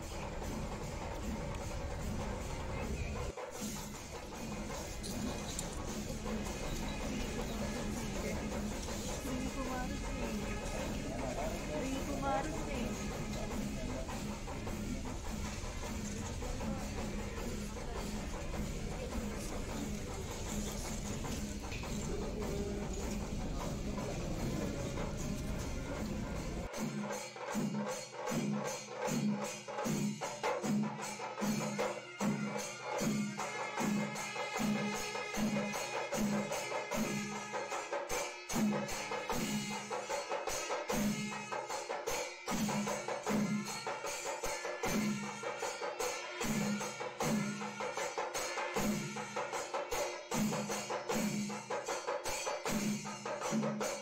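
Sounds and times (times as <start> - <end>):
rhythmic percussion music: 0.0 - 54.0
cymbal-like clash: 25.5 - 54.0.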